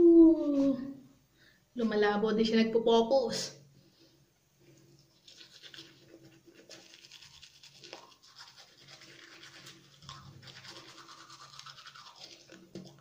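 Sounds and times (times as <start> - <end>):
toothbrush scrubbing teeth: 5.0 - 13.0.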